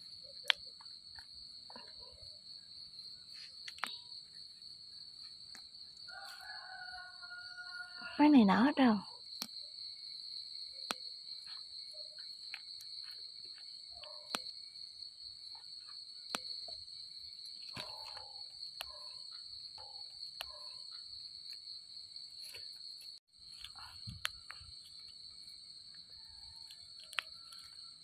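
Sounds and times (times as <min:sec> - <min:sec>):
night insects chorus: 0:00.0 - 0:28.0
rustling of leaves and stems: 0:05.1 - 0:07.2, 0:15.4 - 0:19.1, 0:21.4 - 0:28.0
sharp snaps: 0:09.4 - 0:09.6, 0:14.0 - 0:14.6.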